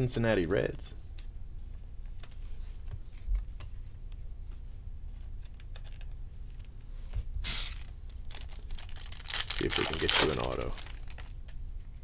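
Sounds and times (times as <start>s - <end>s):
trading cards shuffled by hand: 7.4s - 11.4s
foil wrapper crinkle: 7.5s - 11.4s.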